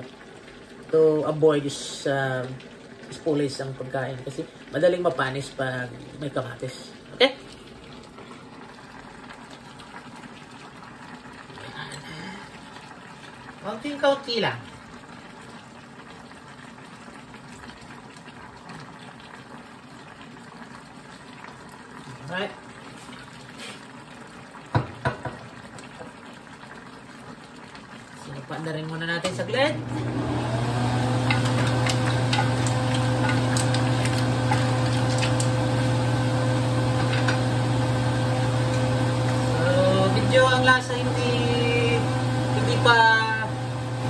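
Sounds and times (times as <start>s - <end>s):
mussels sizzling in a wok: 0.0s - 44.0s
liquid pouring: 14.7s - 41.0s
wooden spoon scraping a pan: 31.2s - 35.5s.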